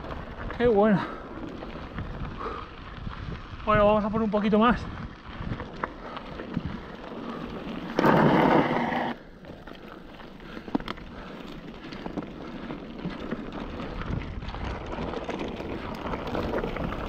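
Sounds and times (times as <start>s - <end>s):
bike rattling: 0.0s - 17.0s
bike tyres rolling on dirt: 0.0s - 17.0s
gravel ticks: 0.0s - 17.0s.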